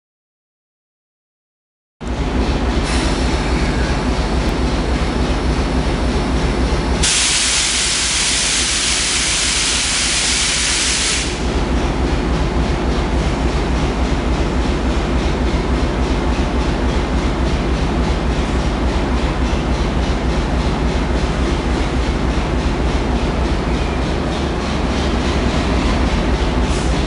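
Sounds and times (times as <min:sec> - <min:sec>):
diesel locomotive engine drone: 0:02.0 - 0:27.0
loud hiss: 0:07.0 - 0:11.4.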